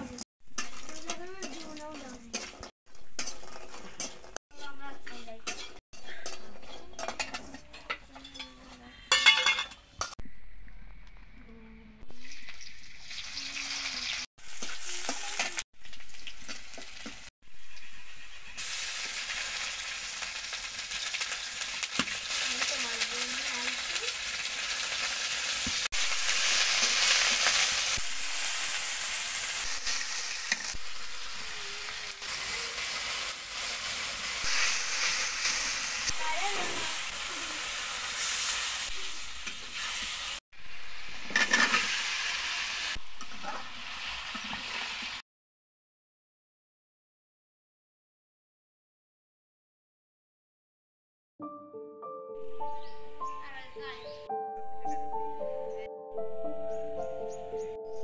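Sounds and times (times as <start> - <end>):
food sizzling in a wok: 0.0 - 10.1, 12.1 - 45.2
metal spatula scraping a pan: 0.5 - 10.1, 41.2 - 42.2.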